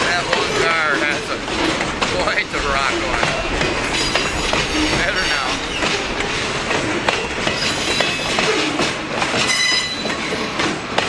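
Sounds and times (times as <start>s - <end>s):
freight cars rolling on rails: 0.0s - 11.0s
wheels clicking over rail joints: 0.0s - 11.0s
high wheel squeal: 3.4s - 8.8s, 9.4s - 10.5s.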